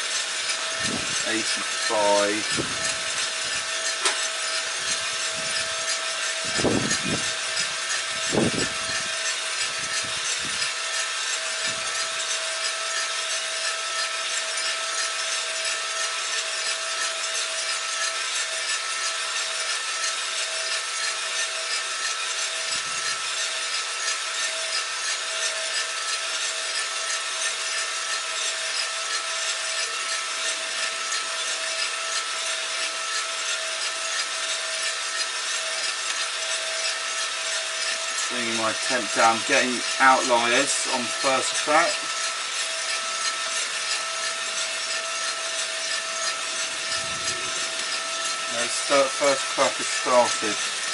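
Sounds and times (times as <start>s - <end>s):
beans tumbling in roaster drum: 0.0s - 8.3s, 45.1s - 50.9s
drum motor and fan hum: 0.0s - 50.9s.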